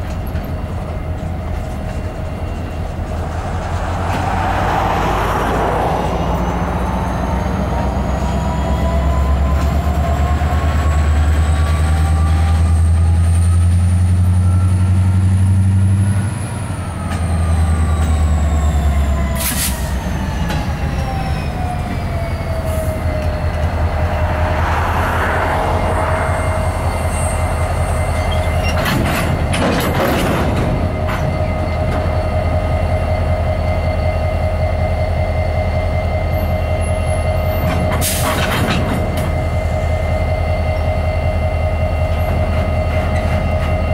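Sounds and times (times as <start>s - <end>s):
metallic clanks from freight cars: 0.0s - 35.1s, 35.7s - 43.9s
diesel locomotive engine: 0.0s - 43.9s
rising whine: 19.9s - 28.8s
wheel squeal: 25.2s - 32.4s.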